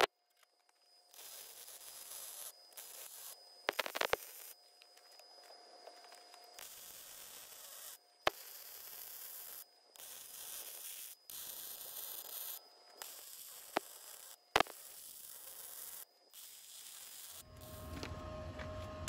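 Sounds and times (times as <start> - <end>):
sharp welding pops: 1.1 - 4.6, 6.6 - 17.7
welding arc hissing crackle: 1.1 - 4.6, 6.0 - 18.2.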